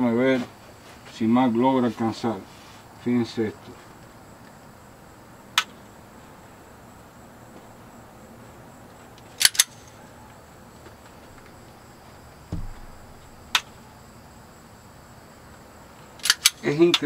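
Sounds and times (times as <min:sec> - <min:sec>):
pistol trigger clicks: 0:09.4 - 0:09.9, 0:16.2 - 0:16.6
dull low thump: 0:12.4 - 0:13.6.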